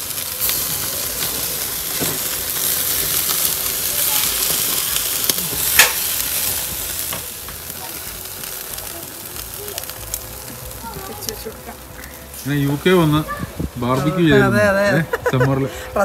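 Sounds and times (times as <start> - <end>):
meat sizzling on a grill: 0.0 - 16.0.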